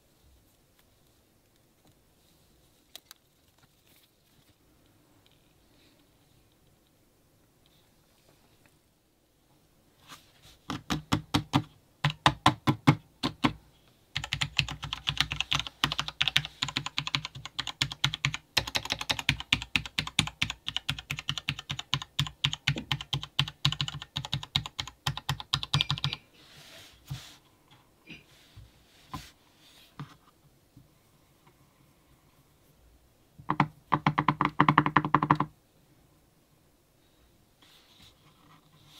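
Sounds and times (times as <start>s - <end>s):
keyboard keys clicking: 14.2s - 26.2s.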